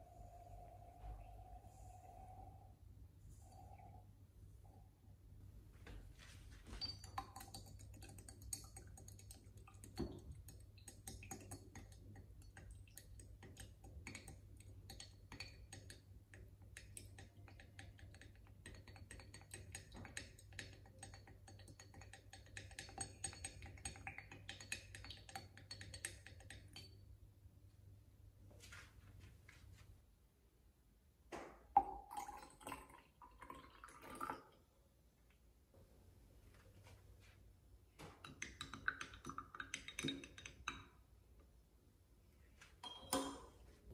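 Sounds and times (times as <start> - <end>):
glass clinks: 6.7 - 7.5, 42.8 - 43.6
liquid pouring into jar: 31.7 - 34.6.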